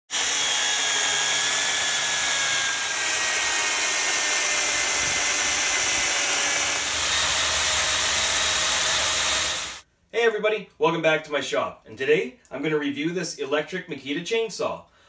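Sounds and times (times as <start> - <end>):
electric chainsaw cutting log: 0.1 - 9.8.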